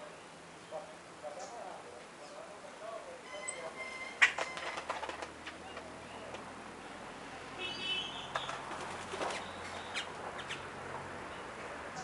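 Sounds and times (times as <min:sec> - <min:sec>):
bird wings flapping: 0:04.2 - 0:06.4, 0:08.3 - 0:09.6.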